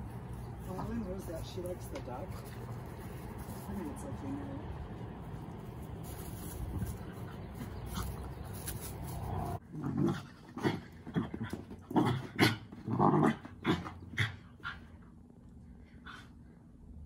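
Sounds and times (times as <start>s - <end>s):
dogs growling and snarling: 9.4s - 15.0s.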